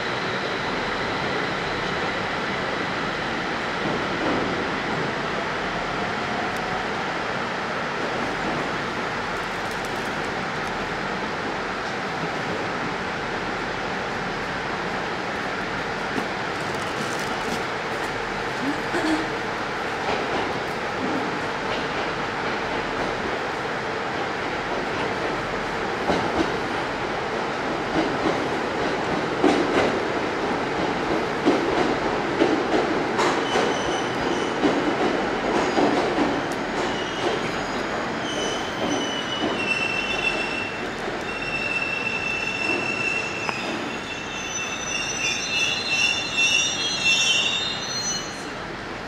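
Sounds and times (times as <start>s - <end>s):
electric train rumbling: 0.0s - 49.0s
train wheels squealing: 33.3s - 34.6s, 35.5s - 48.6s.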